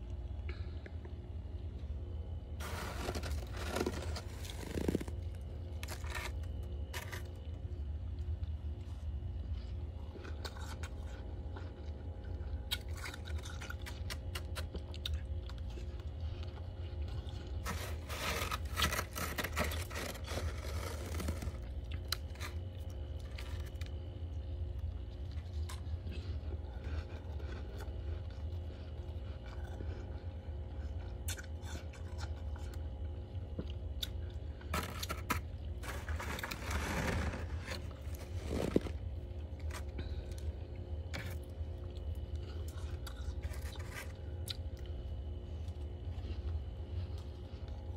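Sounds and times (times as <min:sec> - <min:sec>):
steady low hum: 0:00.0 - 0:47.9
crunching frost: 0:02.6 - 0:07.8, 0:16.9 - 0:24.1, 0:34.6 - 0:40.3, 0:41.1 - 0:44.4.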